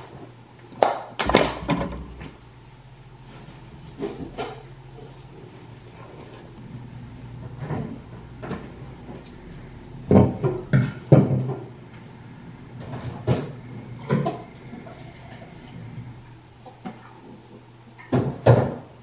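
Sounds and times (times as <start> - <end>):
steady low hum: 0.0 - 19.0
kitchen knocks and clatters: 0.8 - 2.4, 10.1 - 11.8, 18.0 - 18.9.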